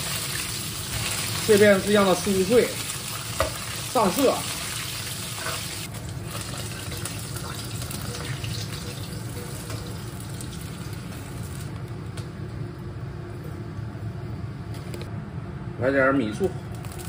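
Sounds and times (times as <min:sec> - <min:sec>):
oil sizzling in a wok: 0:00.0 - 0:11.8.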